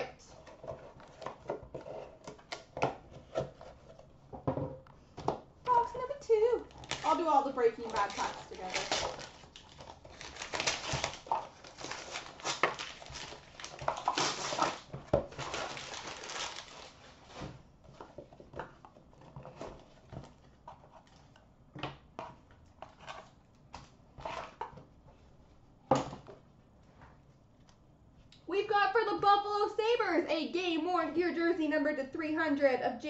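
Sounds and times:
wrapper crinkling and tearing: 6.6s - 17.4s.

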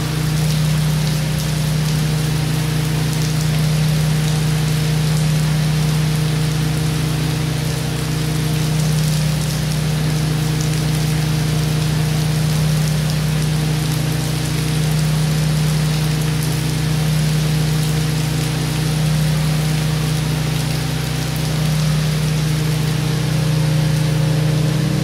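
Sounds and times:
heavy rain splashing on water: 0.0s - 25.0s.

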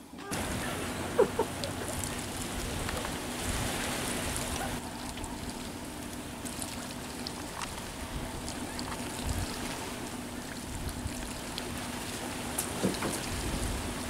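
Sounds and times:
outdoor hiss: 0.0s - 10.4s.

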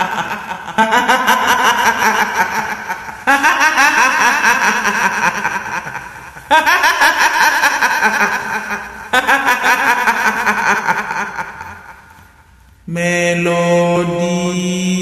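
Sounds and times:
woman cackling giggle: 0.0s - 12.0s.

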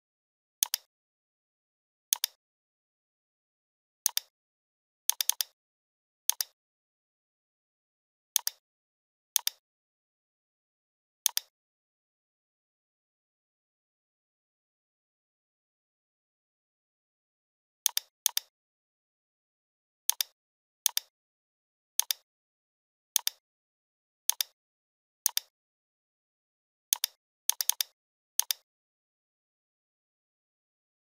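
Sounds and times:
computer mouse clicks: 0.6s - 0.9s, 2.1s - 2.4s, 4.1s - 4.3s, 5.1s - 5.6s, 6.3s - 6.6s, 8.4s - 8.6s, 9.4s - 9.6s, 11.2s - 11.5s, 17.9s - 18.5s, 20.1s - 21.1s, 22.0s - 22.3s, 23.2s - 23.4s, 24.3s - 24.6s, 25.2s - 25.5s, 26.9s - 28.7s.

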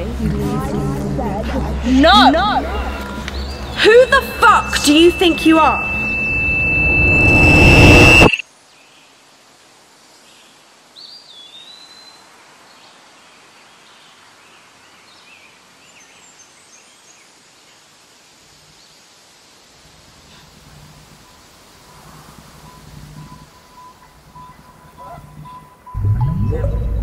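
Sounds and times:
birds chirping: 2.5s - 8.3s
whistled bird note: 2.8s - 8.4s
rush of noise with high whine: 2.9s - 8.5s.

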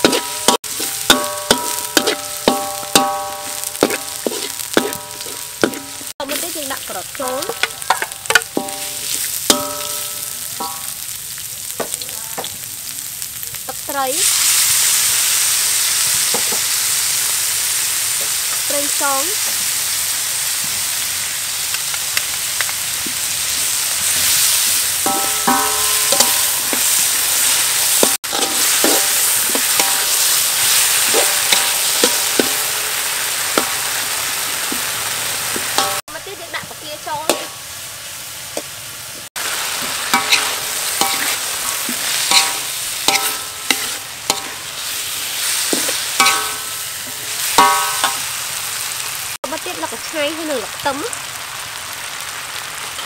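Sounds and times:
spoon clinking on wok: 0.0s - 6.0s, 7.5s - 11.0s, 25.0s - 32.6s, 40.1s - 44.7s, 45.8s - 46.8s, 47.5s - 48.2s
metal spoon scraping wok: 0.0s - 11.0s, 23.5s - 36.0s, 39.5s - 48.4s
food sizzling in a wok: 0.0s - 53.0s.

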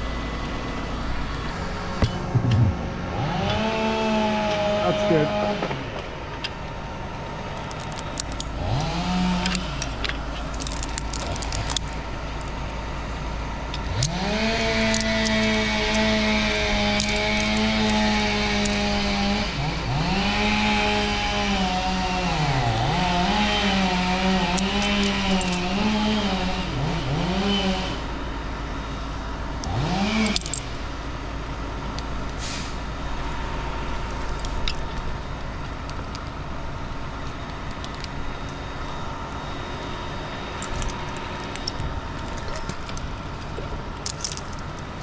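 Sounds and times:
chainsaw cutting wood: 3.1s - 5.7s, 8.5s - 9.8s, 13.9s - 28.0s, 29.7s - 30.6s.

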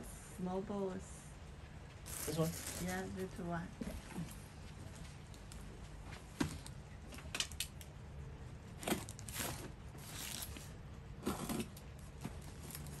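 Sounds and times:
knife cutting cardboard and tape: 11.2s - 13.0s.

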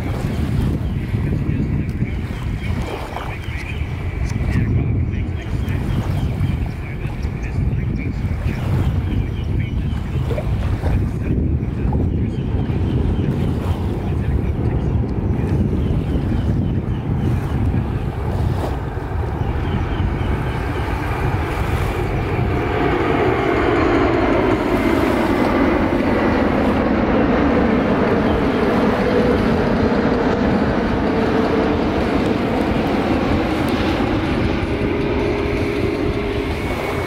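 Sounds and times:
airliner jet engines passing: 0.0s - 37.0s.

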